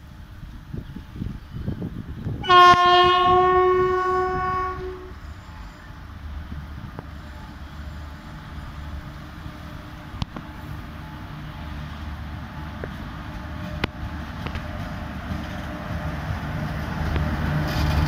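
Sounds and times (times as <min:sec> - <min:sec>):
train rumbling: 0:00.0 - 0:18.0
locomotive horn: 0:02.4 - 0:05.7.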